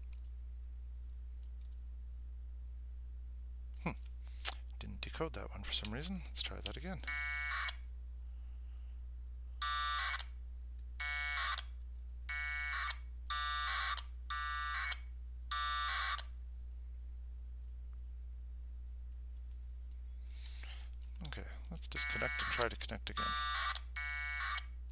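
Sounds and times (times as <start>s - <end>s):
steady low hum: 0.0s - 24.9s
shrill radio data bursts: 21.9s - 23.8s.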